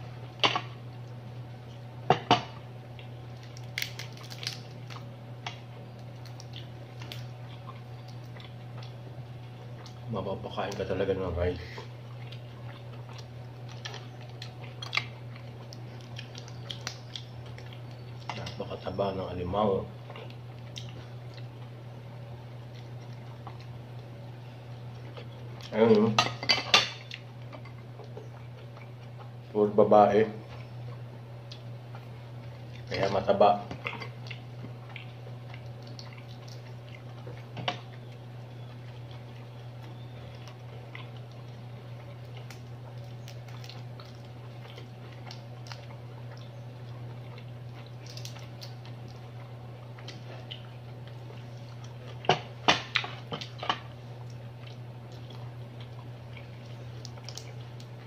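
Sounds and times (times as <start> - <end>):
steady low hum: 0.0 - 58.0
chewing: 2.9 - 10.0, 11.8 - 18.7, 20.0 - 21.8, 22.6 - 25.8, 26.9 - 29.4, 30.4 - 58.0
crab shell cracking: 3.0 - 9.0, 12.8 - 18.4, 38.8 - 51.1, 51.7 - 58.0.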